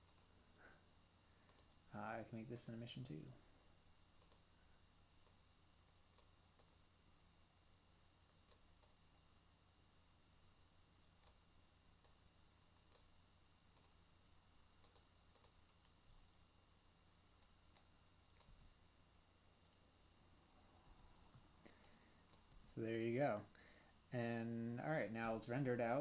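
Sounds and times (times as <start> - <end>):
computer mouse clicks: 0.0 - 0.3, 1.4 - 1.8, 4.2 - 4.5, 5.2 - 5.4, 6.1 - 6.8, 8.4 - 9.0, 11.2 - 11.4, 12.0 - 13.1, 13.7 - 14.0, 14.8 - 16.0, 17.4 - 18.8, 20.8 - 22.7
faint steady hum: 0.0 - 26.0.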